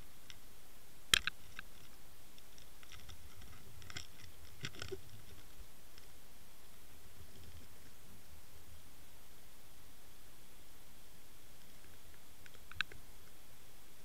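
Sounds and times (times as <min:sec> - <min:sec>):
steady hiss: 0:00.0 - 0:14.0
underwater clicks: 0:01.1 - 0:06.1, 0:11.8 - 0:13.0.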